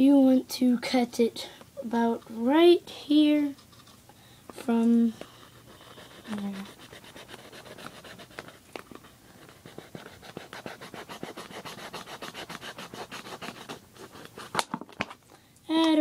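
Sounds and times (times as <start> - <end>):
knife sawing plastic bottle: 5.6 - 8.6, 9.4 - 14.6.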